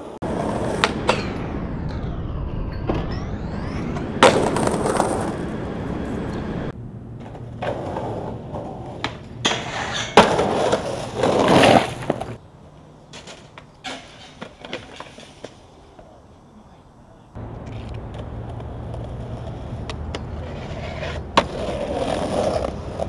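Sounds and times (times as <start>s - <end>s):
skateboard wheels rolling on pavement: 0.0s - 1.4s, 4.2s - 23.0s
skateboard pops and landings: 7.2s - 12.4s, 20.9s - 23.0s
skateboard scraping on metal rail: 7.2s - 12.4s, 13.2s - 15.6s, 17.6s - 23.0s.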